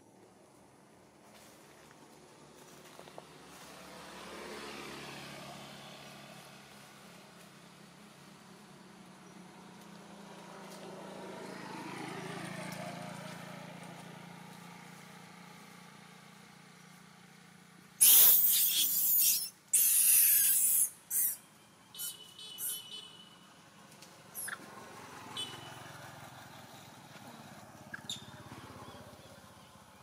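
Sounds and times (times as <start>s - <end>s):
vehicle passing: 2.3s - 19.0s, 23.4s - 30.0s
loud harsh hissing bursts: 18.0s - 21.3s.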